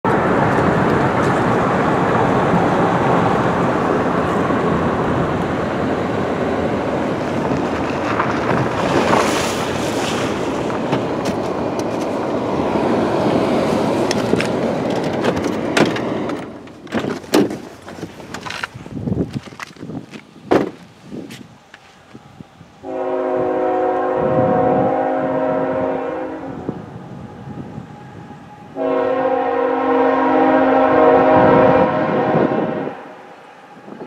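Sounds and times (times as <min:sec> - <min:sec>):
tyres and engine rumble: 0:00.0 - 0:22.7.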